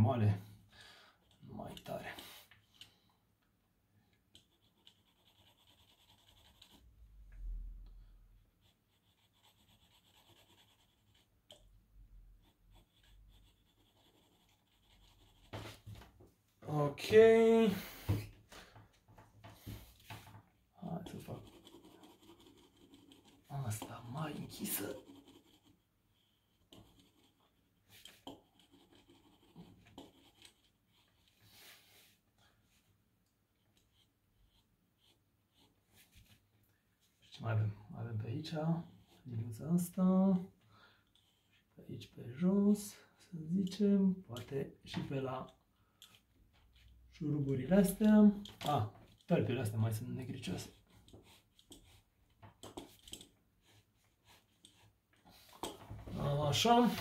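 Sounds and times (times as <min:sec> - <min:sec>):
pencil scratching on paper: 0:04.3 - 0:07.0, 0:08.5 - 0:16.1, 0:19.4 - 0:32.2, 0:33.6 - 0:36.4, 0:38.5 - 0:39.9, 0:41.1 - 0:41.7, 0:44.4 - 0:57.0.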